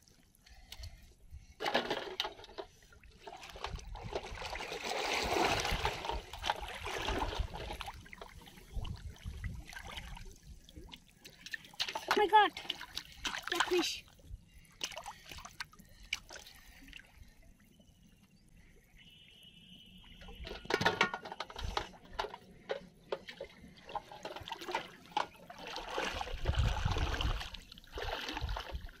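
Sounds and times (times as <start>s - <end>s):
water splashing while wading: 3.1s - 17.1s, 23.1s - 29.0s.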